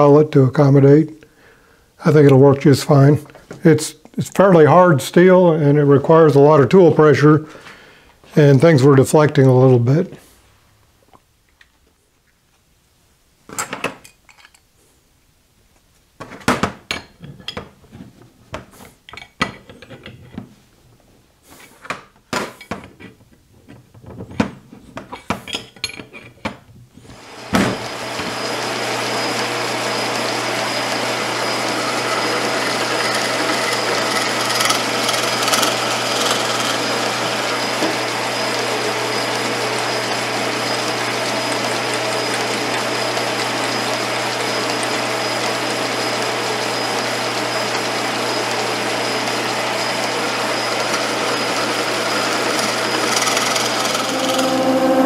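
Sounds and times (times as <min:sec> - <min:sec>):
metal tools clicking and clanking: 0:14.0 - 0:14.7
drill press motor hum: 0:27.1 - 0:55.0.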